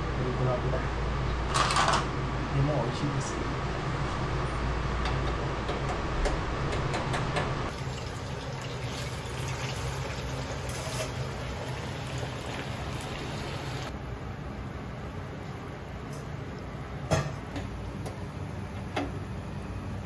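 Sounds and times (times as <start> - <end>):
potatoes sizzling in oil: 7.7 - 13.9.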